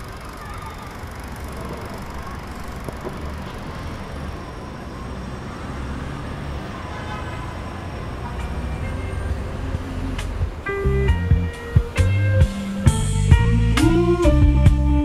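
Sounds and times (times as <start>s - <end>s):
low ambient rumble: 0.0s - 5.0s.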